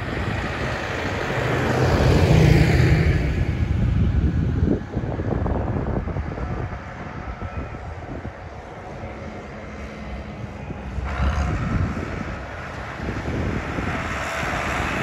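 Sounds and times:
tractor engines droning: 0.0s - 15.0s.

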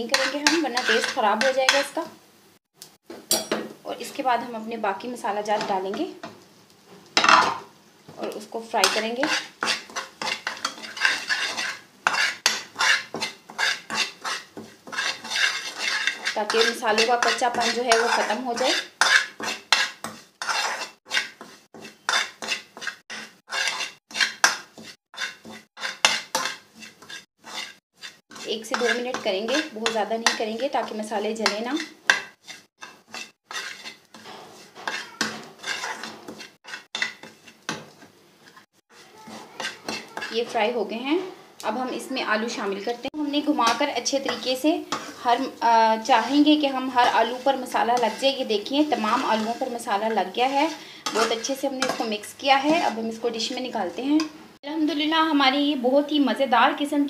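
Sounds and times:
spoon scraping a frying pan: 0.0s - 2.1s, 5.2s - 41.4s, 42.0s - 54.6s
spices frying in fat: 0.0s - 57.0s.

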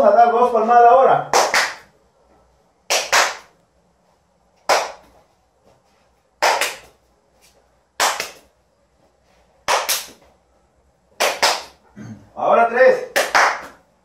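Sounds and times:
hand clapping: 1.3s - 1.9s, 2.9s - 3.6s, 4.6s - 5.2s, 6.4s - 7.0s, 8.0s - 8.5s, 9.6s - 10.3s, 11.2s - 11.8s, 13.1s - 13.8s.

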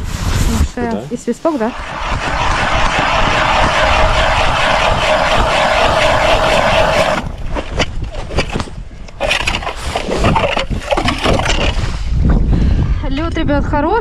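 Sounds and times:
ice auger grinding ice: 1.8s - 8.6s, 9.2s - 11.9s.

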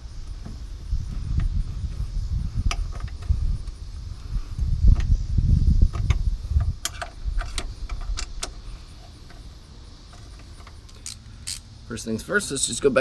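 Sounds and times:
metallic clicks of bolts: 10.3s - 11.7s.

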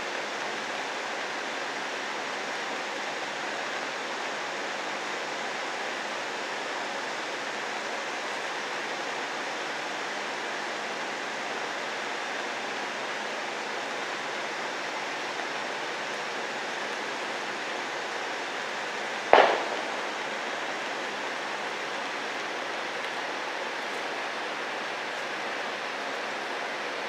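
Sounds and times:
steady rain falling: 0.0s - 27.0s
sharp knock: 19.4s - 20.0s.

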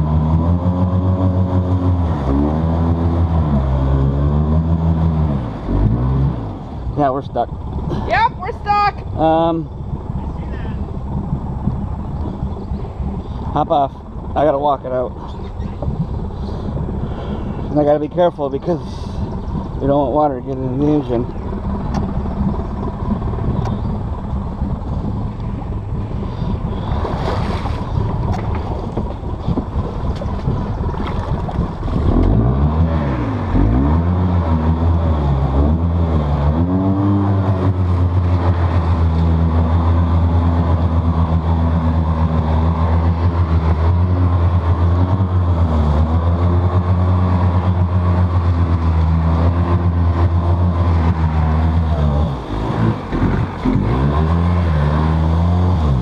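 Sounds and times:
atv engine revving: 0.0s - 56.0s
wheels spinning in mud: 20.6s - 33.8s.

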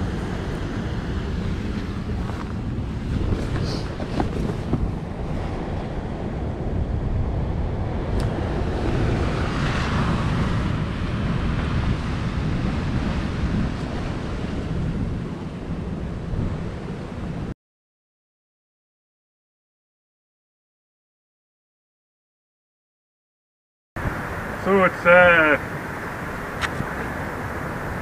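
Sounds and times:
wind buffeting microphone: 0.0s - 17.5s, 24.0s - 28.0s
waves washing against rocks: 24.0s - 28.0s.

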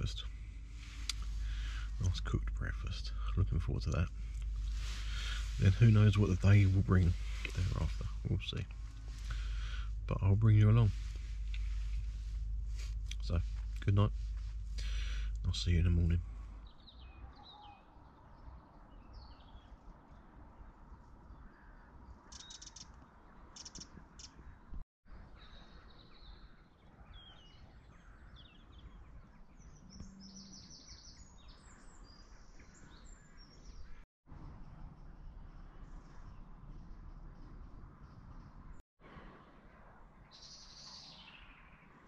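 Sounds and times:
low background rumble: 0.0s - 17.1s
birds chirping and calling: 0.9s - 11.8s, 14.8s - 19.7s, 21.4s - 23.0s, 23.6s - 24.5s
harsh bird calls: 14.8s - 19.8s.

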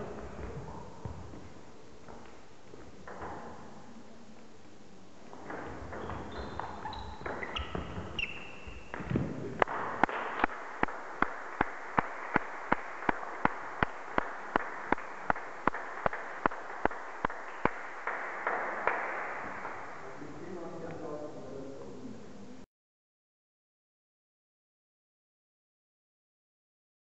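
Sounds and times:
shoe squeaks on floor: 5.9s - 9.0s
rhythmic clapping: 8.9s - 20.0s.

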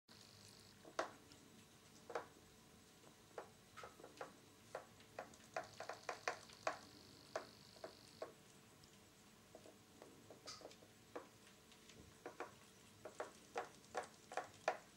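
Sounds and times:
faint high whine: 0.1s - 3.9s, 5.6s - 8.4s
cats tapping a plastic tub: 3.4s - 8.0s.

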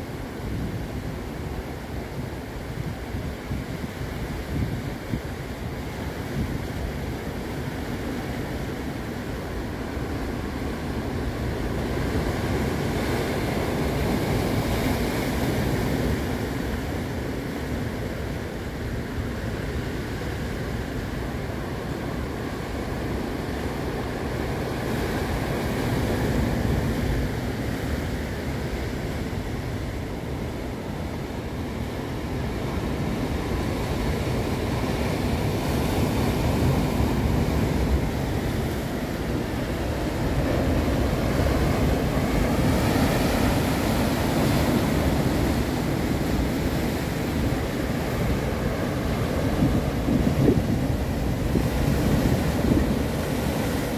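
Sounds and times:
sea surf breaking over rocks: 0.0s - 53.9s.

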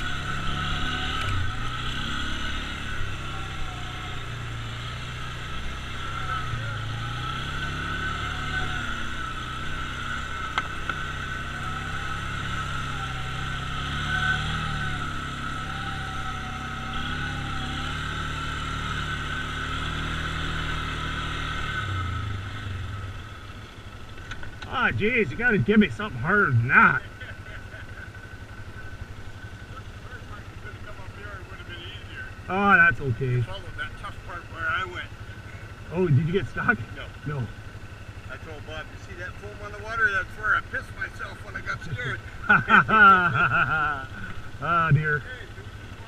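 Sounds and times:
atv engine running: 0.0s - 46.0s.

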